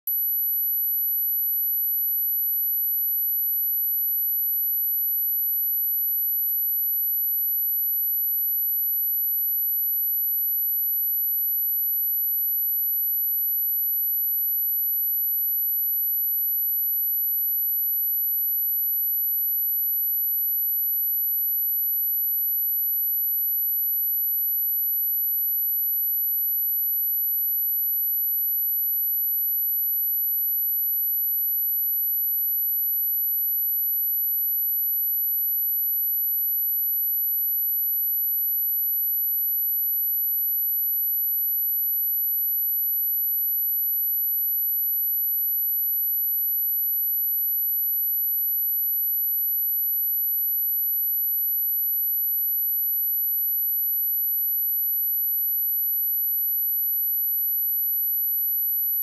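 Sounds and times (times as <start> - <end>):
high-pitched sine test tone: 0.1 - 7.8.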